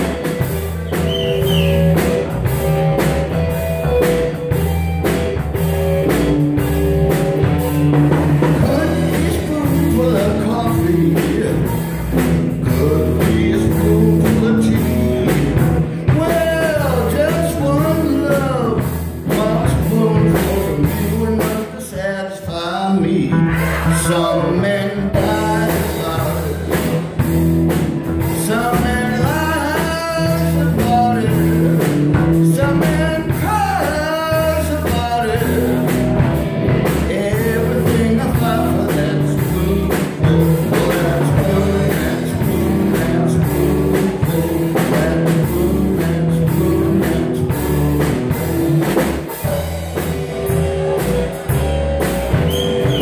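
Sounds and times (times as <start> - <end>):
bass guitar: 0.0 - 53.0
drum kit: 0.0 - 53.0
electric guitar: 0.0 - 53.0
man singing: 8.3 - 27.2, 28.2 - 48.3.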